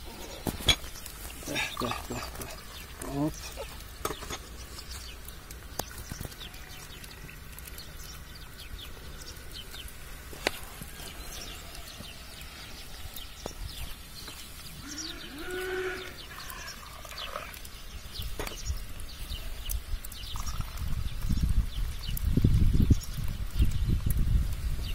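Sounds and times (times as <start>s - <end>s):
small birds chirping: 0.0s - 24.9s
farm animal bleating: 14.8s - 16.7s.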